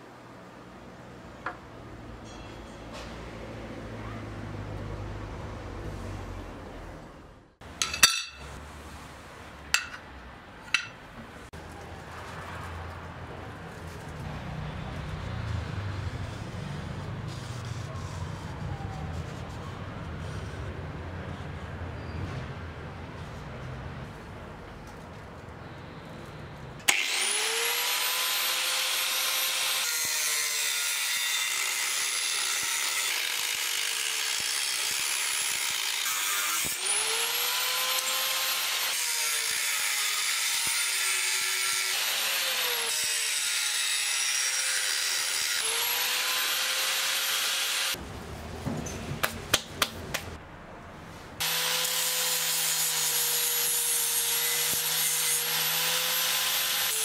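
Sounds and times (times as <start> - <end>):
angle grinder cutting sheet metal: 26.8 - 48.0, 51.4 - 57.0.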